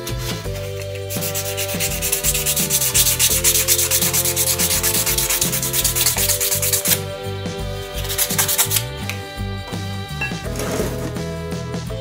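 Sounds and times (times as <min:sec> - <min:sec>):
sandpaper scrubbing lacquered wood: 0:00.0 - 0:08.9.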